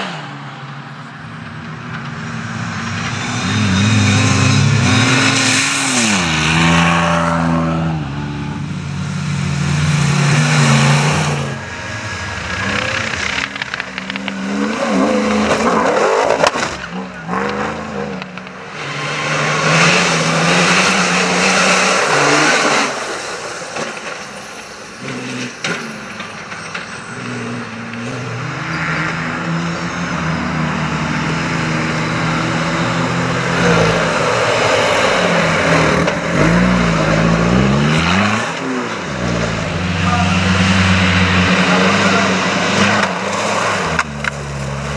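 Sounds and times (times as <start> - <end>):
rally car engines revving: 0.0 - 44.9
tyres throwing dirt and gravel: 9.8 - 28.2, 41.0 - 44.9.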